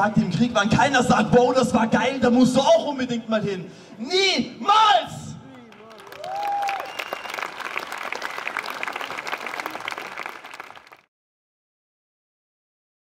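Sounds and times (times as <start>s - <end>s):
person cheering: 5.5s - 7.4s
crowd applauding: 5.5s - 11.1s.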